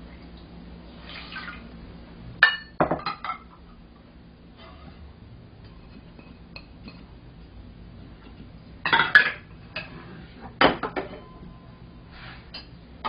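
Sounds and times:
metal cup and bowls clattering: 0:08.8 - 0:10.0.

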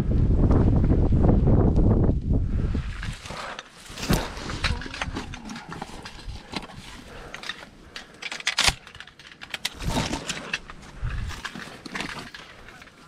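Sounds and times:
rummaging in a bag: 0:03.0 - 0:13.0
shells clicked into gun: 0:04.6 - 0:10.8.

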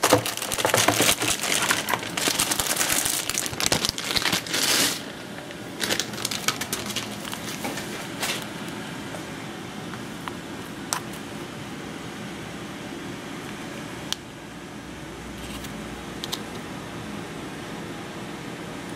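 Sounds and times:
packaging rustling: 0:00.0 - 0:08.5
low room hum: 0:00.0 - 0:18.9.

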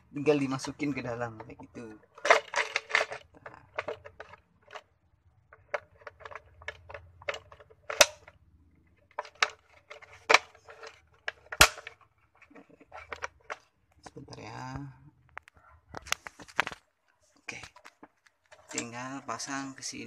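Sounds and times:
small rattles: 0:00.5 - 0:14.2
plastic clicks and knocks: 0:01.4 - 0:04.9, 0:05.5 - 0:08.4, 0:09.1 - 0:14.2, 0:15.2 - 0:16.8.

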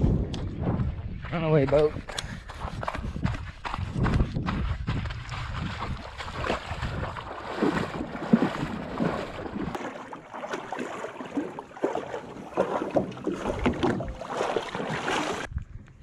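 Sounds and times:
splashing through shallow water: 0:03.6 - 0:15.5.

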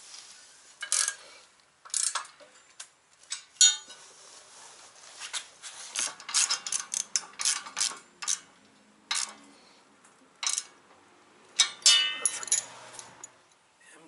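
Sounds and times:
ratchet wrench clicking: 0:00.8 - 0:01.2, 0:01.8 - 0:02.4, 0:06.0 - 0:08.5, 0:09.1 - 0:09.4, 0:10.4 - 0:10.8
metallic clinks of bolts: 0:06.1 - 0:08.5, 0:09.1 - 0:09.4, 0:10.4 - 0:10.7, 0:11.6 - 0:13.6.

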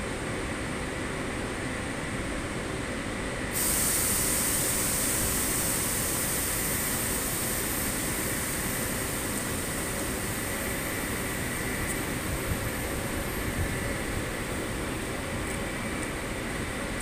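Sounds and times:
compressed air hissing: 0:03.5 - 0:14.8
electric locomotive running: 0:03.5 - 0:17.0.

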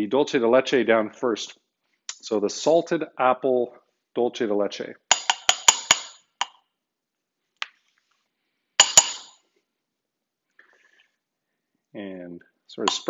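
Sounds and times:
metal spoon clinking on ceramic dish: 0:05.1 - 0:06.2, 0:08.8 - 0:09.4.

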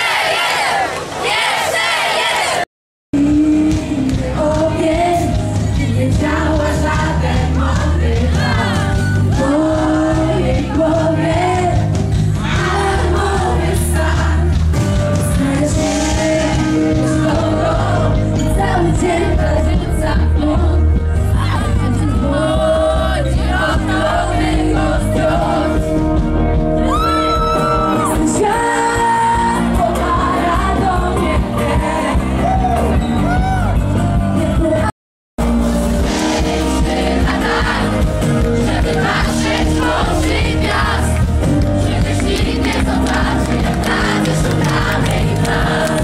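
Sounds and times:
crowd shouting: 0:00.0 - 0:02.7, 0:35.9 - 0:41.1
woman singing: 0:03.2 - 0:11.9, 0:15.2 - 0:25.8, 0:28.1 - 0:31.7
live pop band: 0:03.2 - 0:46.0.

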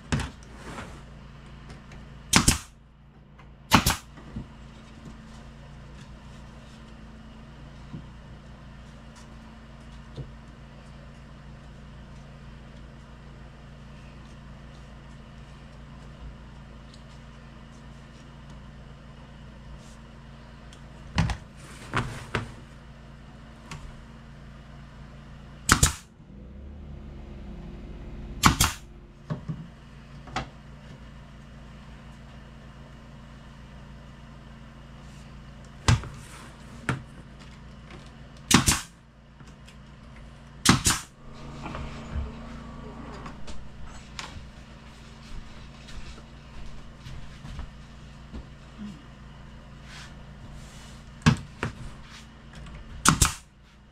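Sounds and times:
nail gun firing: 0:02.3 - 0:02.7, 0:03.7 - 0:04.1, 0:25.7 - 0:26.1, 0:28.4 - 0:28.8, 0:38.5 - 0:38.9, 0:40.6 - 0:41.1, 0:53.0 - 0:53.4.

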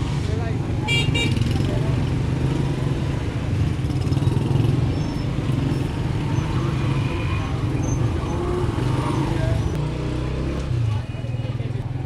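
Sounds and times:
street bustle: 0:00.0 - 0:12.0
motorcycle engines running: 0:00.2 - 0:12.0.

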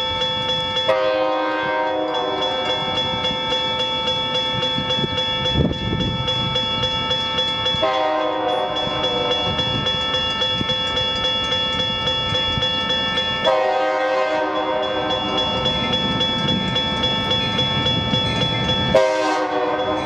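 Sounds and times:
crossing signal bell ringing: 0:00.0 - 0:20.0
locomotive air horn: 0:00.9 - 0:02.6, 0:07.8 - 0:09.5, 0:13.5 - 0:15.0, 0:18.9 - 0:20.0.

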